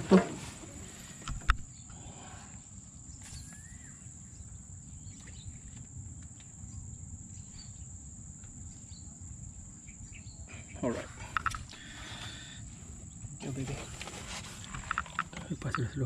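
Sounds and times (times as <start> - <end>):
faint clicks: 11.3 - 11.9.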